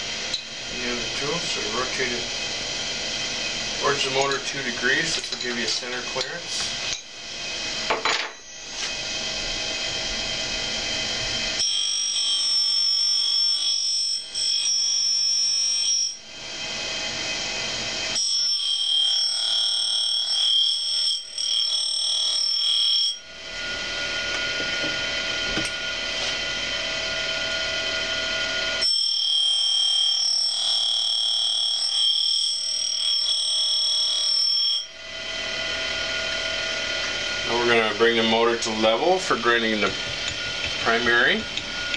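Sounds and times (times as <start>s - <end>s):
grinder motor running: 0.0s - 11.6s, 23.3s - 28.8s, 35.1s - 41.9s
high-pitched grinding whine: 0.0s - 41.9s.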